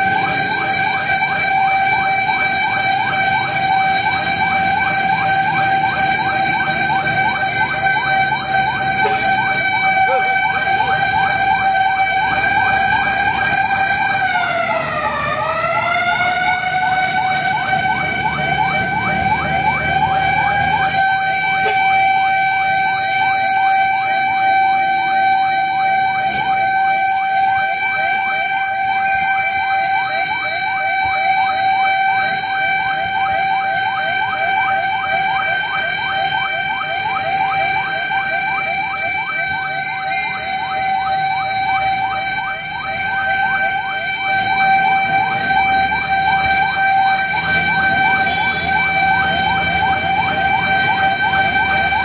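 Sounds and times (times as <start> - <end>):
fire truck siren yelping: 0.0 - 52.0.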